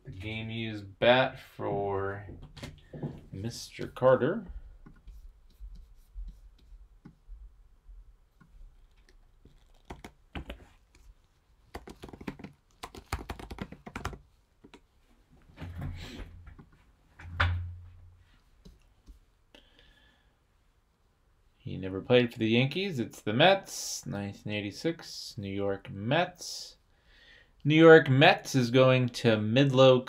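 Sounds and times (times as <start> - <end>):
typing on computer keyboard: 9.0 - 10.5, 11.7 - 14.8.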